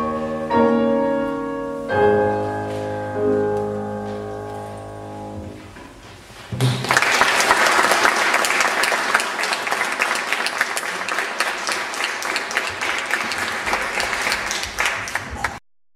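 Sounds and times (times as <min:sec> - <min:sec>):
audience applauding: 0:06.6 - 0:15.6.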